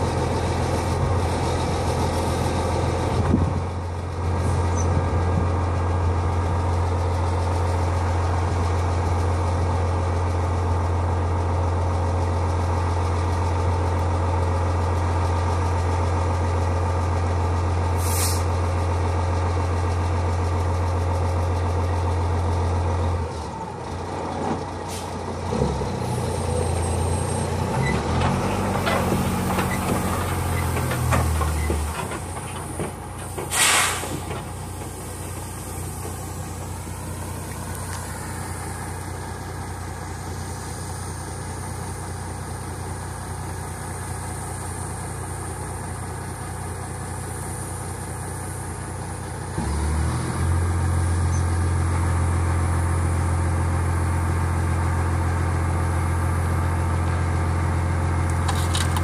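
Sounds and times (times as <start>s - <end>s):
diesel engine running: 0.0s - 59.0s
air hiss: 18.0s - 18.5s, 33.2s - 36.9s.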